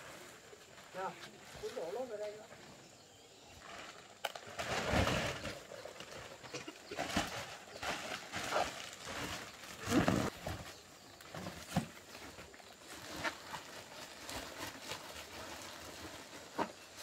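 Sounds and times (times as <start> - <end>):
plastic sacks rustling: 3.5 - 17.0.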